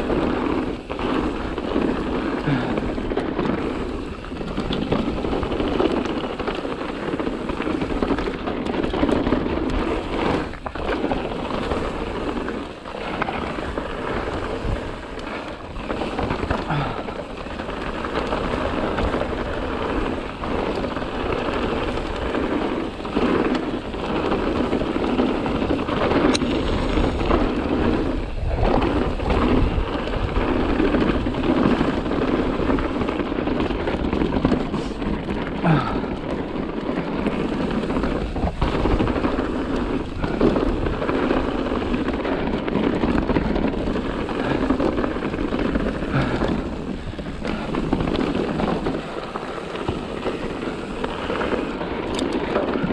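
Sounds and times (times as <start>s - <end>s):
bike clattering and rattling: 0.0s - 52.9s.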